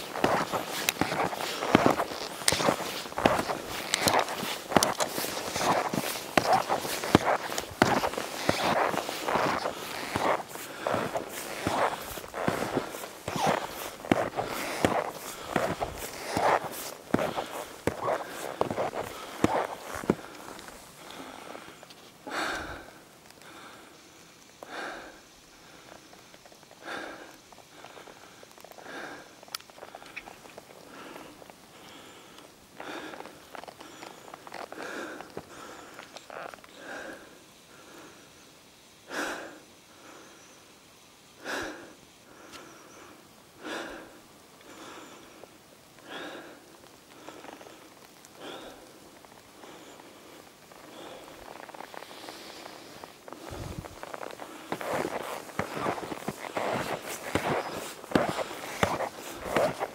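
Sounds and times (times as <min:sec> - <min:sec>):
skis and poles crunching in snow: 0:00.0 - 0:24.0, 0:25.8 - 0:37.4, 0:44.7 - 0:59.9
person breathing hard: 0:00.0 - 0:26.2, 0:26.8 - 0:30.2, 0:30.9 - 0:36.1, 0:36.8 - 0:38.4, 0:39.1 - 0:40.4, 0:41.4 - 0:59.9.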